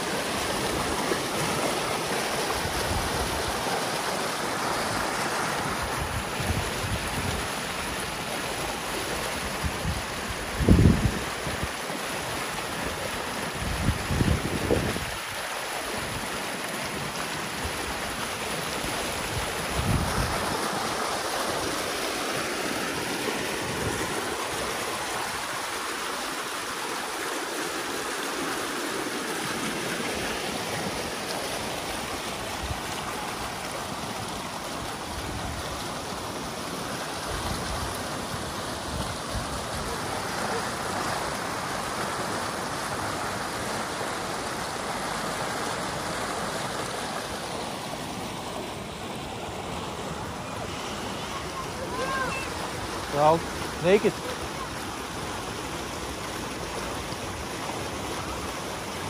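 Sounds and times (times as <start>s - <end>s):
water rushing down ditch: 0.0s - 59.0s
wind rumbling on microphone: 9.6s - 11.7s, 13.6s - 15.3s, 19.2s - 20.8s.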